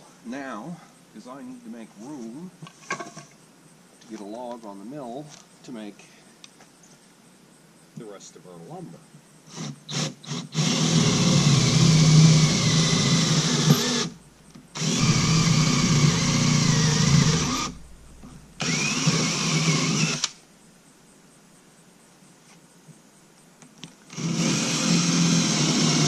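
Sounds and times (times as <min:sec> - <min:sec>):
cordless drill into plywood: 0:09.5 - 0:14.2, 0:14.8 - 0:17.8, 0:18.6 - 0:20.4, 0:24.1 - 0:26.0.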